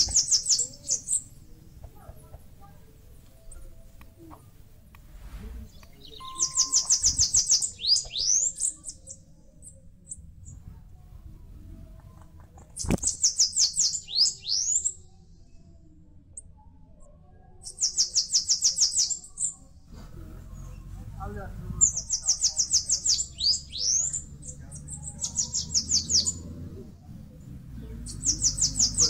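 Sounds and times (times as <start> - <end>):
bird singing high thin notes: 5.9 - 9.2.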